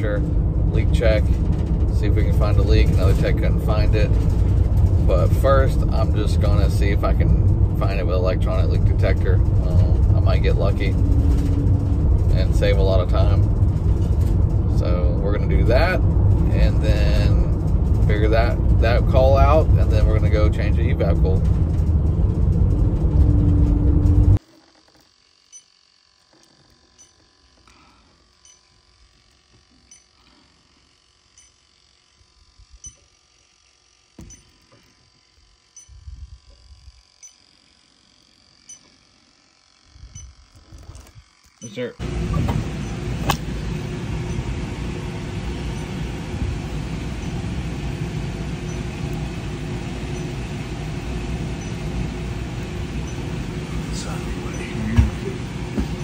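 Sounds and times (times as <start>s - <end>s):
road noise inside van: 0.0s - 24.4s, 41.6s - 56.0s
air handler blower rushing: 0.0s - 24.5s, 34.0s - 56.0s
leak detector ticking: 24.4s - 53.6s.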